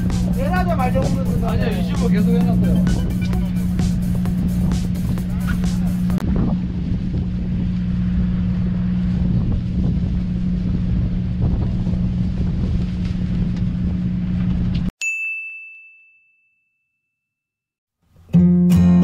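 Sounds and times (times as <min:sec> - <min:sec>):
boat machinery humming: 0:00.0 - 0:14.4
high bell ding: 0:15.0 - 0:17.2.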